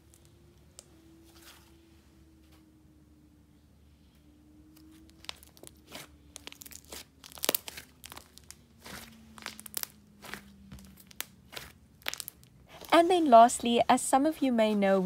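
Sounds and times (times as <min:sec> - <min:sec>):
clay slime squelching and popping: 0:04.8 - 0:13.0.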